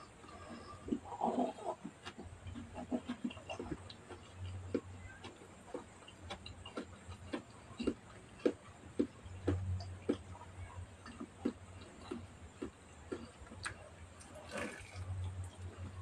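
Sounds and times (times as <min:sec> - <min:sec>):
faint low hum: 0:00.0 - 0:16.0
person chewing food: 0:00.0 - 0:16.0.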